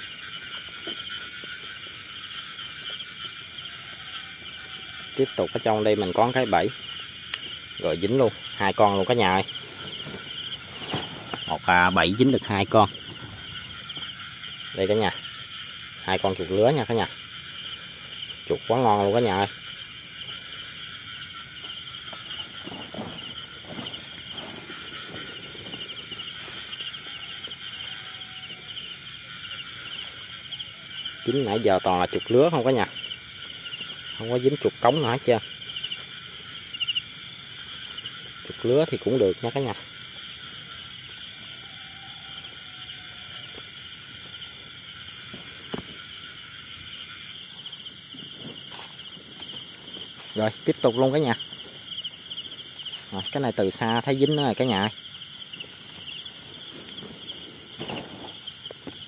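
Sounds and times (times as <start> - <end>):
night insects trilling: 0.0 - 59.0
footsteps through grass: 9.3 - 12.0, 21.6 - 30.4, 47.3 - 53.8.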